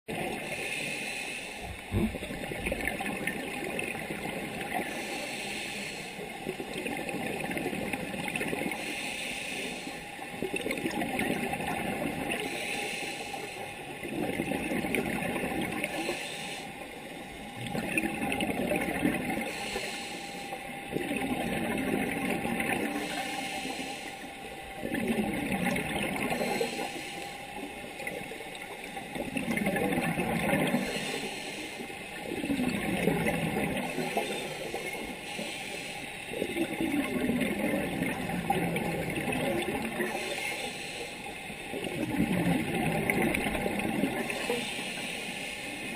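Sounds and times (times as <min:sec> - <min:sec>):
scuba regulator breathing underwater: 0:04.7 - 0:06.3, 0:08.6 - 0:10.2, 0:11.5 - 0:14.8, 0:15.5 - 0:28.2, 0:29.5 - 0:38.1, 0:39.5 - 0:41.6, 0:43.8 - 0:45.9.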